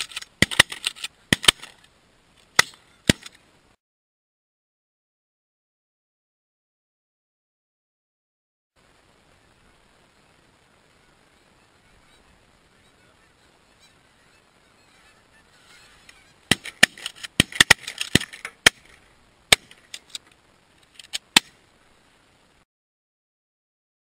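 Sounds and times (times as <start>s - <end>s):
shotgun blasts: 0.4s - 1.7s, 16.5s - 19.8s
geese honking: 11.0s - 17.2s.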